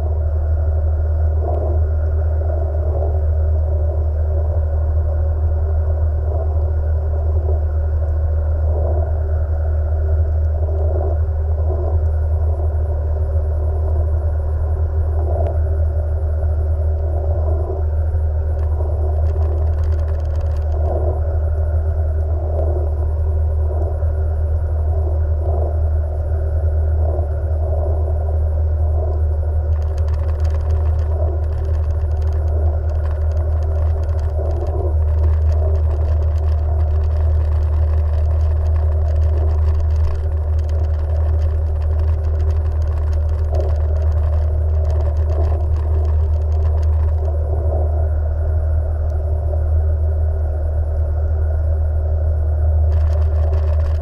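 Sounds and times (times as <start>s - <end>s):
jet ski engine drone: 5.4s - 54.0s
rough crackling hiss: 18.5s - 21.3s, 29.6s - 47.6s, 52.9s - 54.0s.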